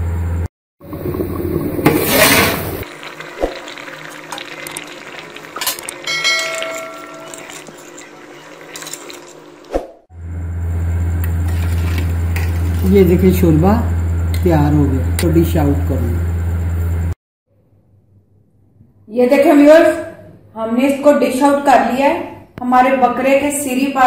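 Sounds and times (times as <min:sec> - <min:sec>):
short ringing chime: 0:06.1 - 0:07.4.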